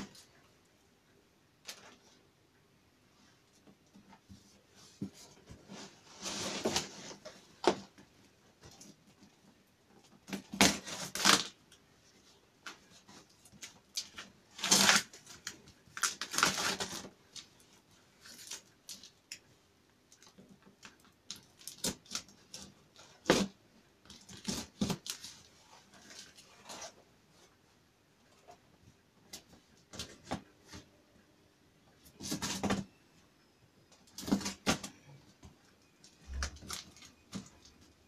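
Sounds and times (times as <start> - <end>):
cardboard and tape rustling: 3.6 - 19.3, 20.1 - 27.6, 32.0 - 32.9, 34.0 - 38.0.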